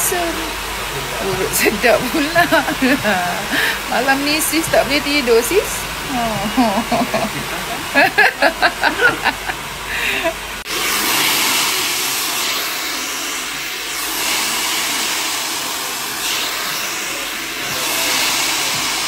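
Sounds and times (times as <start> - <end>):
hair dryer blowing: 0.0 - 19.0.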